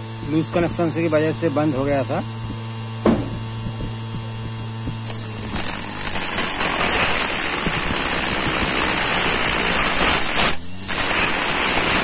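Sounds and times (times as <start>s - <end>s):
key cutting machine motor whining: 4.0s - 12.0s
cutter wheel grinding metal key: 5.0s - 12.0s.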